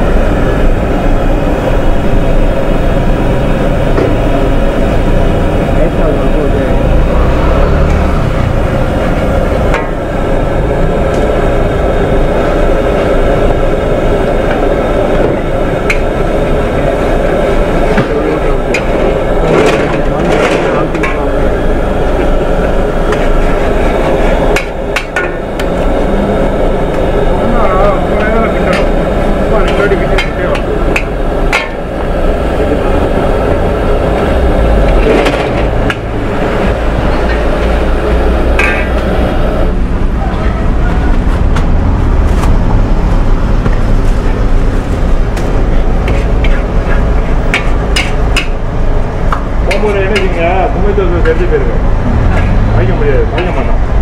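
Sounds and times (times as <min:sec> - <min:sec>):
noodles sizzling with burner rush: 0:00.0 - 0:54.0
metal spatula scraping a wok: 0:38.5 - 0:39.0
metal spatula clanking on wok: 0:38.6 - 0:39.0, 0:47.5 - 0:48.6.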